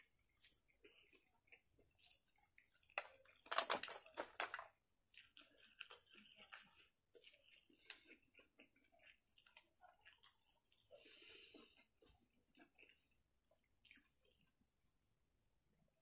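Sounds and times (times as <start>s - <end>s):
person chewing food: 0.0s - 15.0s
wet mouth clicks: 13.8s - 14.5s.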